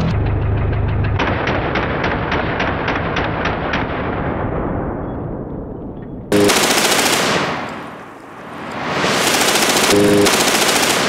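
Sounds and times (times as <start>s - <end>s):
rifle full-auto shots: 6.3s - 8.0s, 9.0s - 11.0s.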